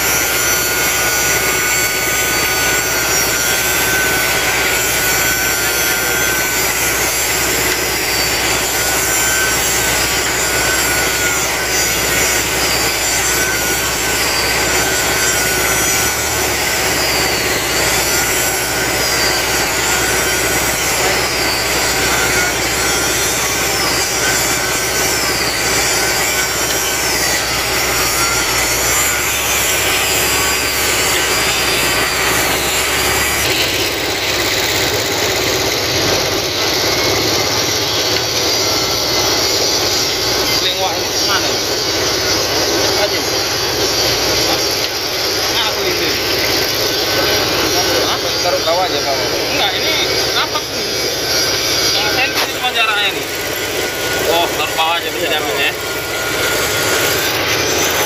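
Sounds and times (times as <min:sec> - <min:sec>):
wavering high whine: 0:00.0 - 0:58.0
diesel engine under load: 0:11.9 - 0:25.9, 0:26.5 - 0:58.0.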